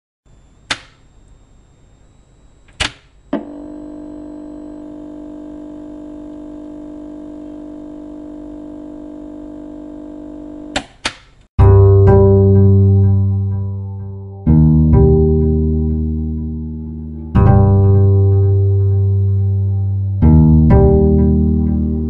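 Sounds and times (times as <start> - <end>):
electronic drone: 12.2 - 22.0.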